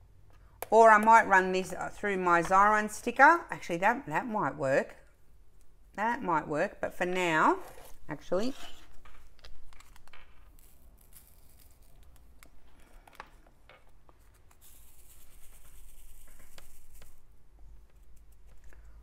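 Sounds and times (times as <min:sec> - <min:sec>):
plastic beads rattling in a shaken tray: 0:14.6 - 0:17.2.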